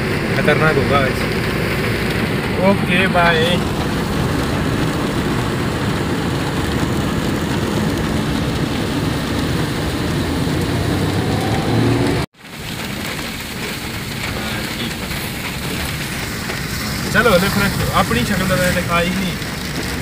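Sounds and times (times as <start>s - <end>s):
car engine: 0.0s - 20.0s
heavy rain on a car: 0.0s - 20.0s
road noise: 0.0s - 20.0s.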